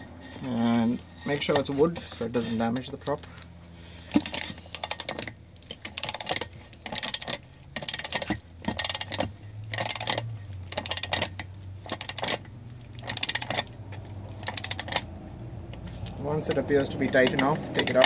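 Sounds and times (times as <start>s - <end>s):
socket ratchet clicking: 4.1s - 16.2s.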